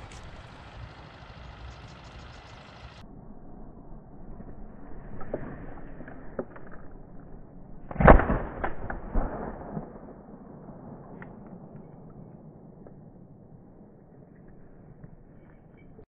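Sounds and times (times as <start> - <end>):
shotgun shot: 7.8 - 11.3.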